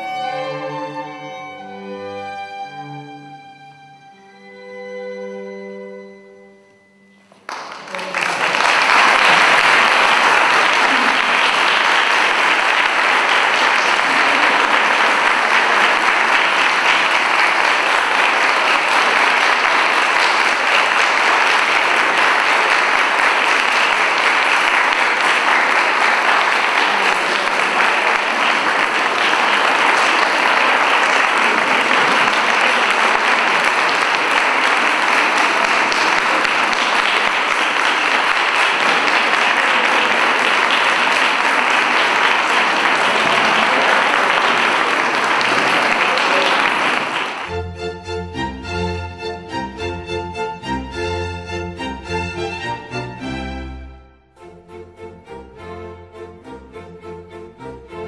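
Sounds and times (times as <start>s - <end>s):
audience applauding: 7.3s - 47.6s.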